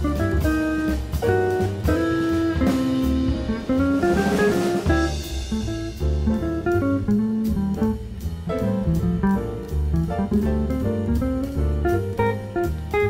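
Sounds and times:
bass line: 0.0s - 13.0s
drum kit cymbals: 0.0s - 13.0s
jazz guitar line: 0.0s - 13.0s.

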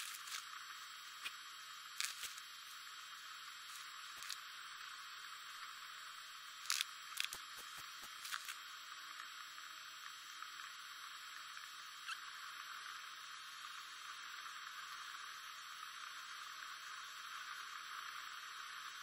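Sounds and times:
faint steady hiss: 0.0s - 19.0s
small clicks: 6.6s - 9.3s.

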